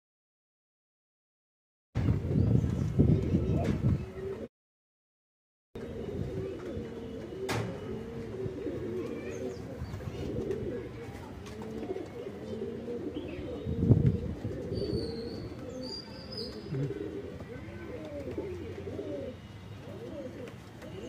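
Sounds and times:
pigeons cooing: 3.2 - 4.5, 5.8 - 21.0.

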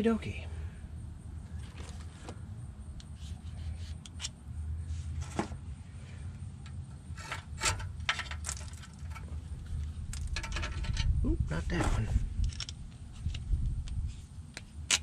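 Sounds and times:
metallic clicks and rubbing: 3.0 - 4.4, 6.6 - 11.1, 12.3 - 15.0.

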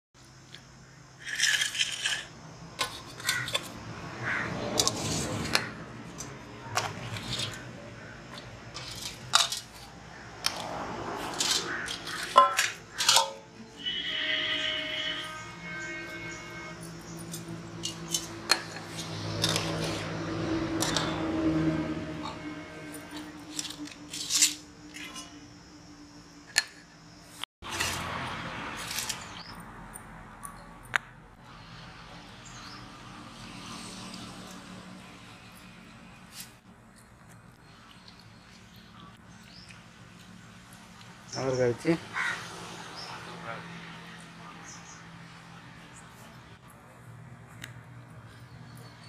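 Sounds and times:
outdoor background noise: 0.2 - 49.0
steel dishes clinking and scraping: 8.8 - 9.9, 11.3 - 13.5, 22.2 - 25.4.

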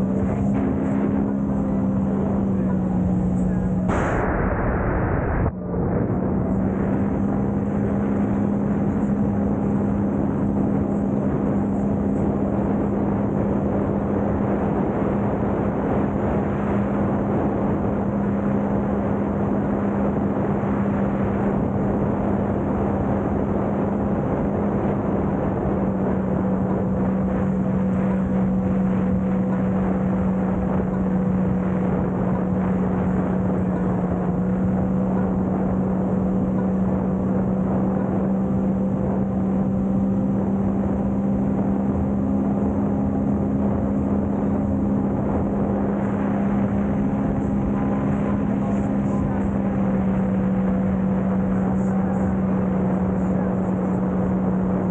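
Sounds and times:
watercraft engine drone: 0.0 - 54.9.

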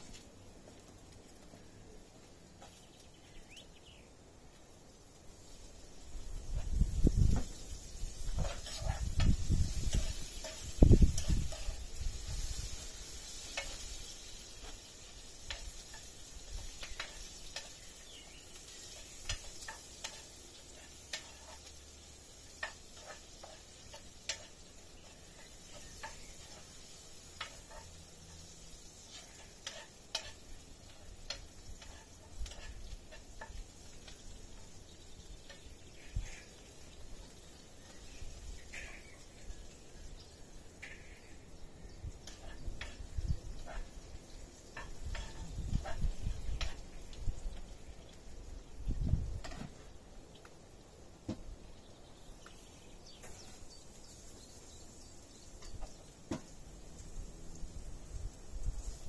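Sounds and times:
food sizzling in a pan: 0.0 - 59.0.

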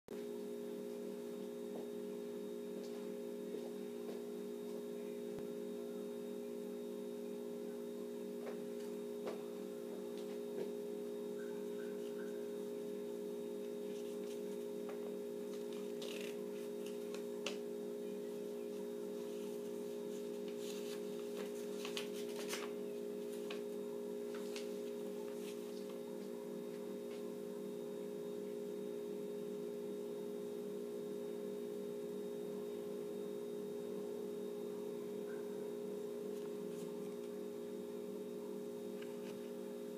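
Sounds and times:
low steady hum: 0.1 - 39.9
paper crinkling and rustling: 15.5 - 17.6, 19.2 - 26.8.

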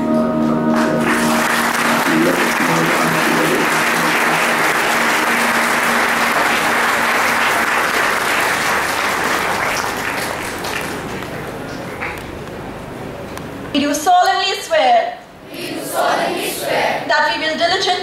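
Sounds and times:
music with held tones: 0.0 - 8.2
audience applauding: 0.8 - 12.4.

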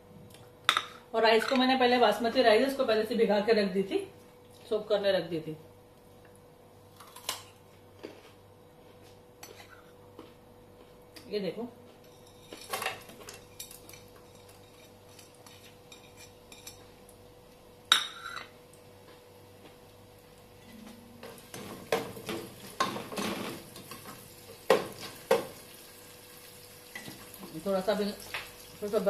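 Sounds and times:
onions sizzling in oil: 22.6 - 29.0.

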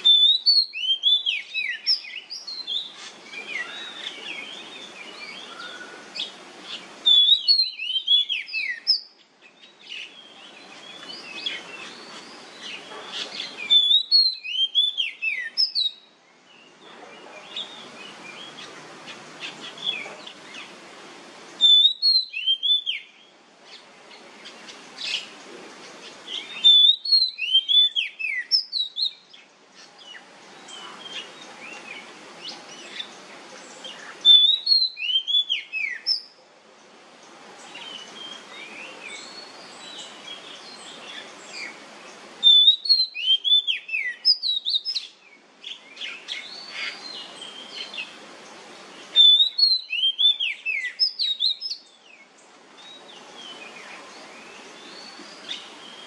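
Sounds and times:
bird whistling song: 0.0 - 16.7, 21.6 - 23.3, 26.3 - 29.4, 33.8 - 36.4, 42.4 - 48.1, 49.1 - 52.0
soft bird chirps: 0.0 - 20.8, 21.5 - 56.0
steady hiss: 0.0 - 56.0.

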